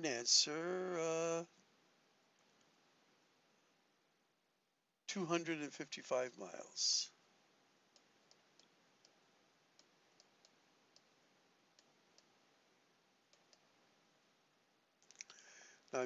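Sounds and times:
faint computer mouse clicks: 9.8s - 11.2s, 13.3s - 13.7s.

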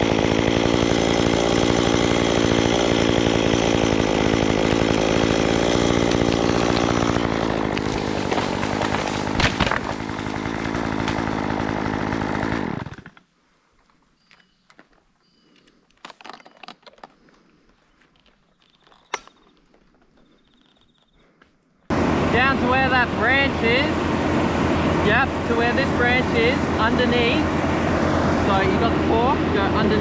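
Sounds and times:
chainsaw running: 0.0s - 13.3s, 21.9s - 30.0s
sharp crack: 5.7s - 11.3s.

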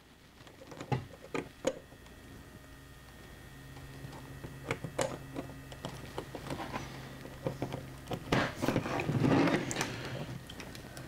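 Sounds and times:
plastic rubbing: 3.9s - 11.0s.

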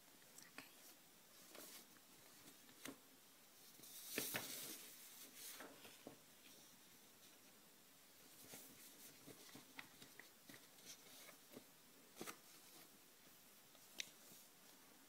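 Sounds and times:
paper rustling: 3.6s - 6.2s, 8.3s - 12.9s.

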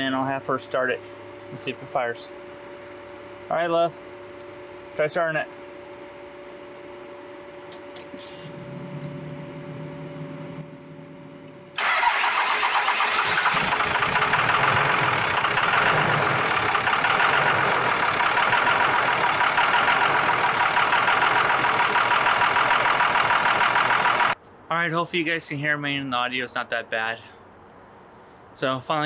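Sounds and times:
diesel engine cranking: 11.8s - 24.4s
diesel engine idling with clatter: 11.8s - 24.4s.

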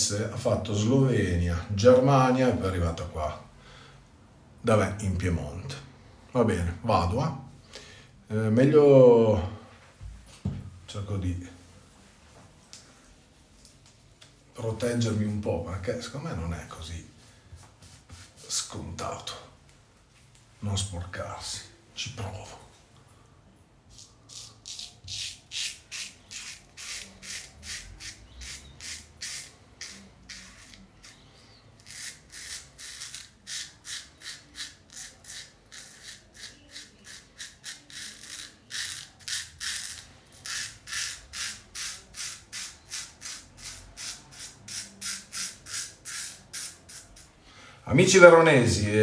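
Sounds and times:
shaving brush scrubbing face: 23.9s - 31.2s, 31.8s - 47.3s.

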